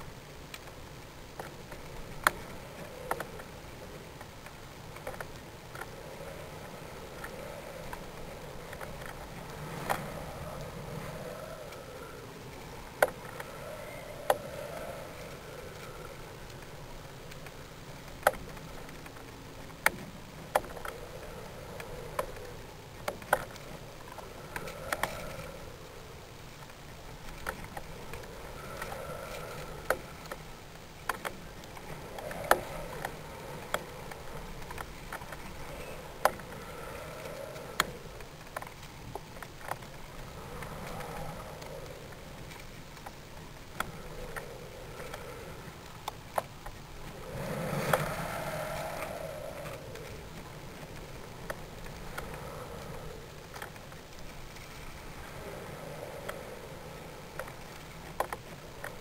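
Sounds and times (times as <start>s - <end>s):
steady rushing noise: 0.0s - 59.0s.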